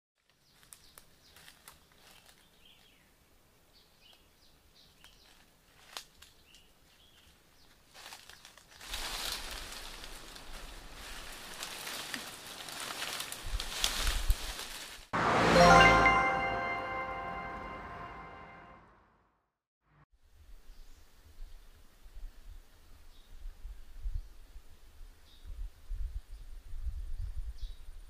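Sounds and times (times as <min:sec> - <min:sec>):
dry leaves rustling and crunching: 0:00.2 - 0:03.0, 0:05.0 - 0:15.1
twigs snapping: 0:05.0 - 0:07.3, 0:08.0 - 0:14.8.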